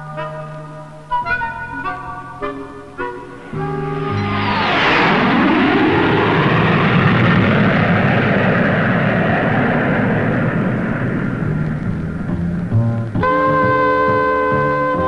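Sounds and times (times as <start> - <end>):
aircraft flying past: 2.7 - 13.2.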